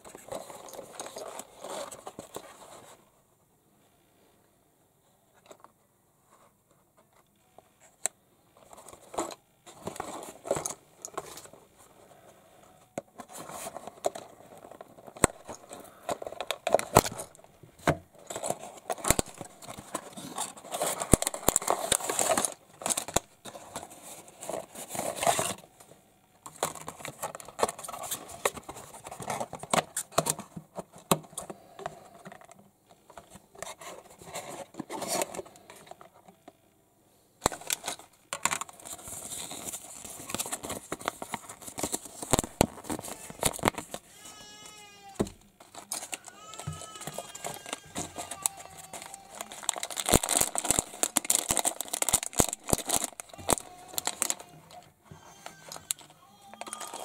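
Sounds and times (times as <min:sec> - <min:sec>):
packaging crinkling and rustling: 0:00.0 - 0:03.1, 0:07.9 - 0:36.6, 0:37.4 - 0:57.0
plastic parts clicking and tapping: 0:13.0 - 0:25.6, 0:26.4 - 0:36.6, 0:37.4 - 0:57.0.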